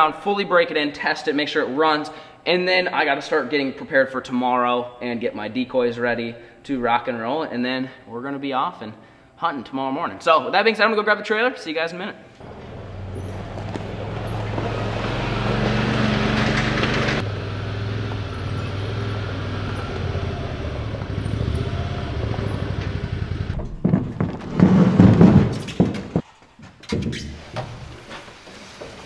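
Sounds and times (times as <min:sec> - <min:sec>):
metal boat scraping and knocking: 0:12.4 - 0:17.3, 0:20.8 - 0:29.0
utility vehicle engine: 0:12.4 - 0:24.4.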